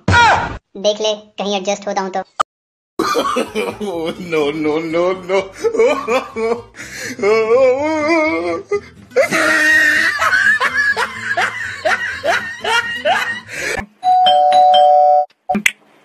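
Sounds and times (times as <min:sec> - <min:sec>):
background music: 0:03.0 - 0:13.8
exaggerated laughter: 0:03.0 - 0:13.8
electronic doorbell chime: 0:14.0 - 0:15.3.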